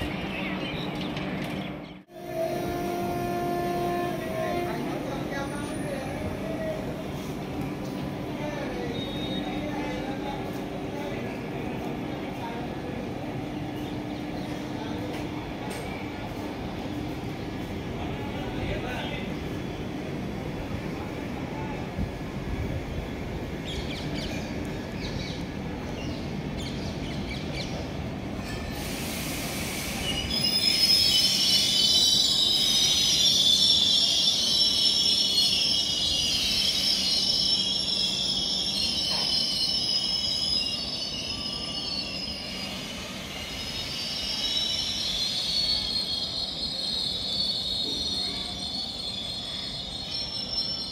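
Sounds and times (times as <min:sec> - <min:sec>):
high-pitched wheel squeal: 0:30.0 - 0:50.9.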